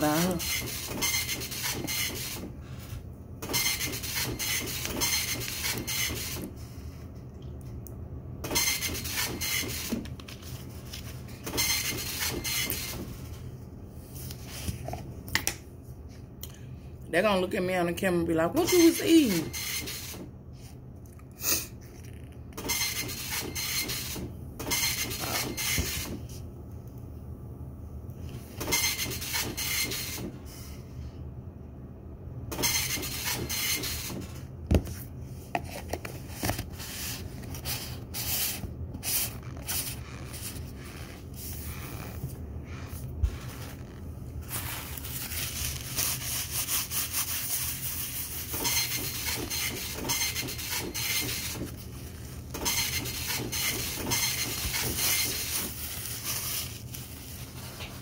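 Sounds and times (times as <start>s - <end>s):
steady low hum: 30.0s - 58.0s.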